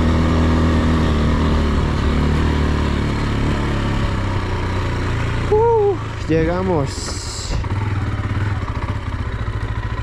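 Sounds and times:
motorcycle engine running: 0.0 - 10.0.

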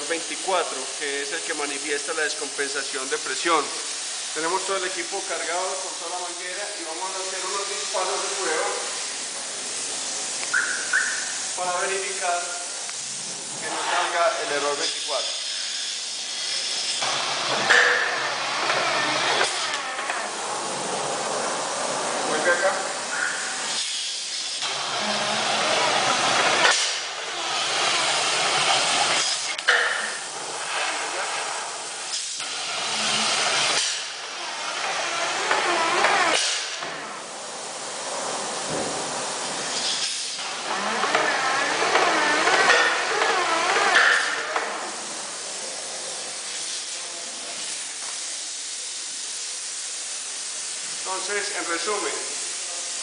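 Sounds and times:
spray gun hissing: 0.0 - 53.0
machine running: 24.6 - 39.7.

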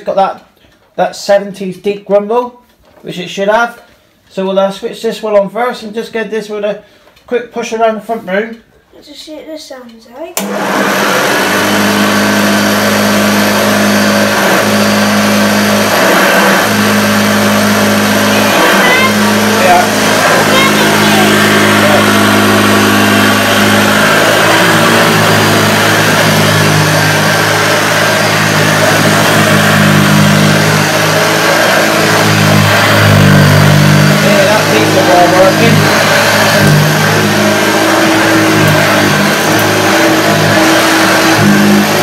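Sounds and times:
upright vacuum cleaner running: 10.4 - 42.0.

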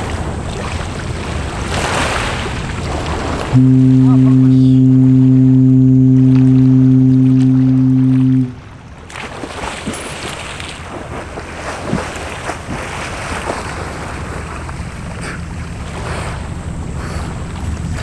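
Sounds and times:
water splash: 6.0 - 16.5.

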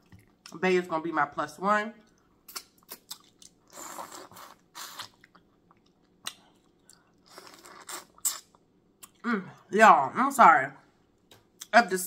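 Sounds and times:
wet chewing and sucking: 2.1 - 9.2.

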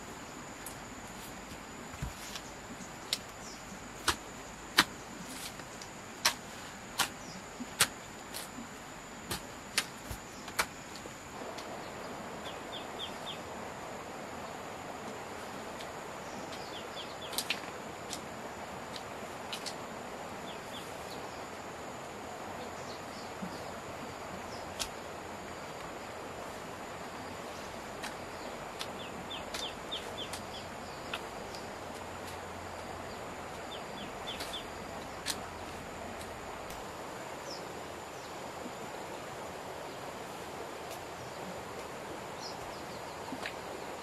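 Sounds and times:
rustling or scraping: 1.0 - 2.6.

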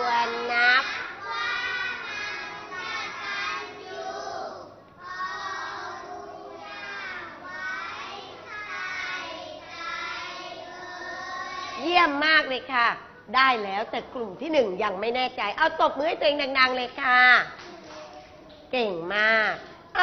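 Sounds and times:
children chanting in unison: 0.3 - 11.9.

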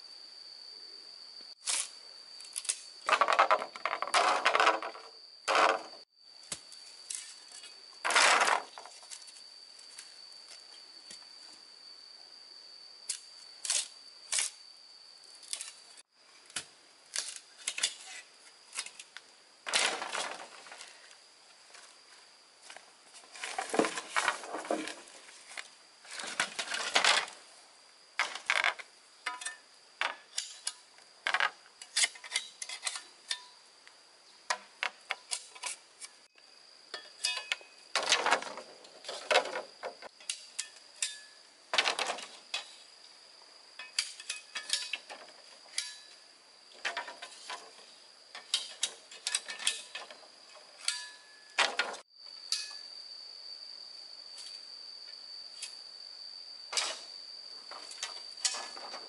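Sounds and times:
high insect drone: 0.0 - 59.0
knocks and scrapes of hand tools: 2.6 - 6.0, 28.2 - 33.5, 34.5 - 36.2, 43.8 - 46.2, 46.8 - 52.8, 56.7 - 57.1, 57.7 - 59.0.

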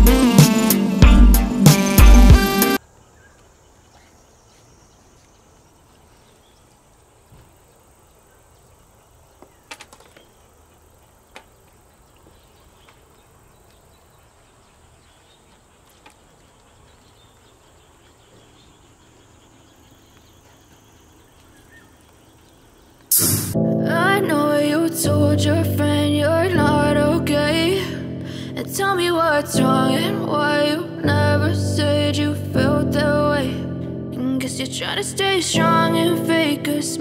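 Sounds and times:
high insect drone: 2.7 - 23.7
fishing rods clicking: 9.6 - 10.3, 15.8 - 16.8.

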